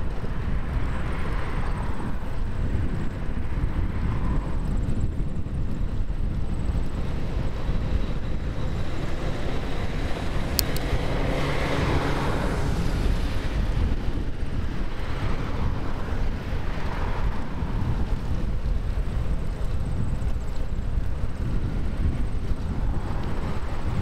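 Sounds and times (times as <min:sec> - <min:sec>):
wind rushing over microphone: 0:00.0 - 0:24.0
vehicle passing: 0:06.9 - 0:19.8.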